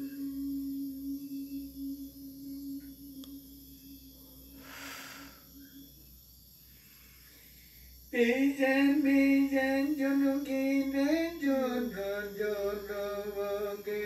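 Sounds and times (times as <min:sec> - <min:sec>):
person chanting long notes: 0:00.0 - 0:05.8.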